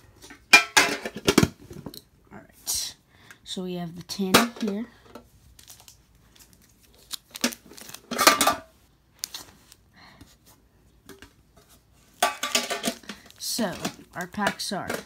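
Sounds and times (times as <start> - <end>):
metal tin clattering: 0.2 - 1.5, 8.1 - 8.7, 12.2 - 15.0.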